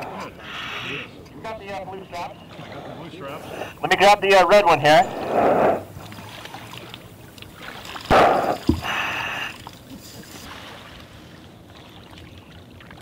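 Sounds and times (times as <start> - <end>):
river water splashing: 5.1 - 13.0
water trickling: 5.7 - 13.0
loud sharp splash: 7.7 - 8.9.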